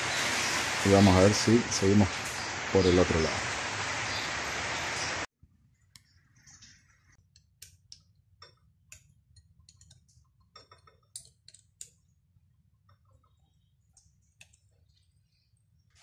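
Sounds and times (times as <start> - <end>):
hands clicking and tapping metal: 7.2 - 12.1.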